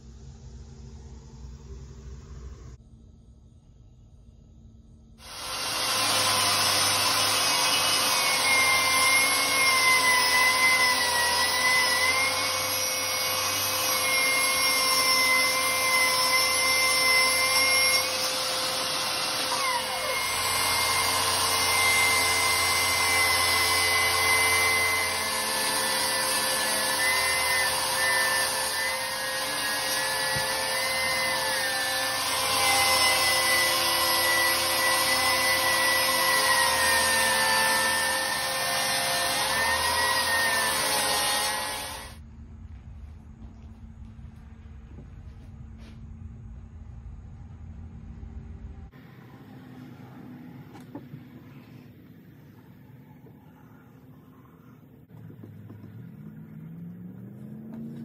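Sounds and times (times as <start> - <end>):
table saw cutting wood: 5.2 - 42.2.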